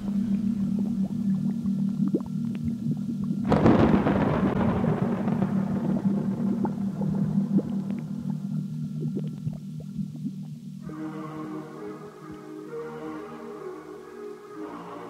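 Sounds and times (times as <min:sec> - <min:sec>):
faint crackles: 0:00.0 - 0:10.8
low steady drone: 0:00.0 - 0:15.0.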